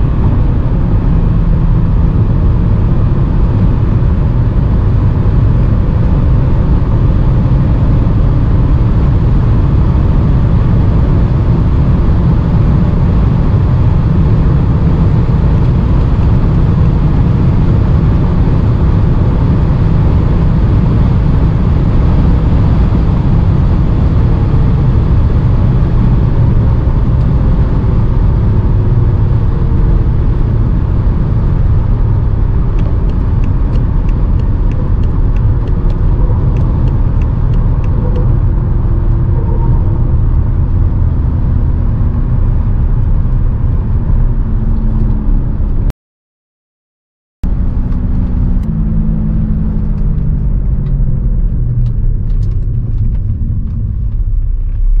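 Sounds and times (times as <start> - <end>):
diesel engine slowing down: 0.0 - 45.9, 47.4 - 55.0
road and wind rumble: 0.0 - 45.9, 47.4 - 55.0.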